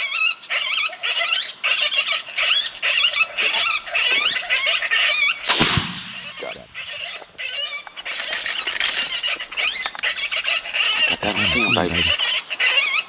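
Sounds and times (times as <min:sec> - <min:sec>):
gunshot with echo: 0:05.5 - 0:06.6
electronic squealing distress cries: 0:09.0 - 0:12.3.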